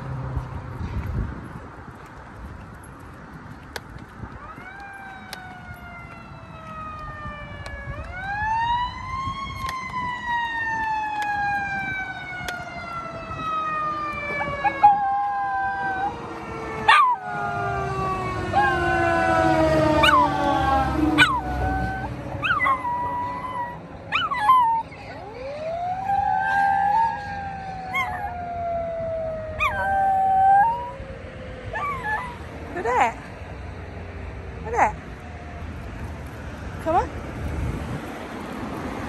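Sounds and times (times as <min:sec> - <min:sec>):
fire truck siren wailing: 0:04.4 - 0:33.1
dog howling: 0:16.9 - 0:24.9, 0:26.0 - 0:31.0, 0:31.7 - 0:32.4.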